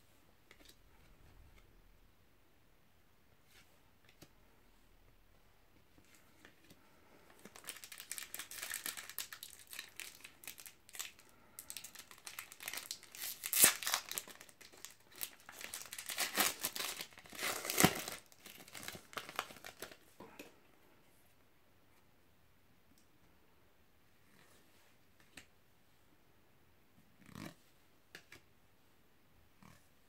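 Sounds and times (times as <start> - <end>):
foil pack tearing and crinkling: 7.6 - 19.8.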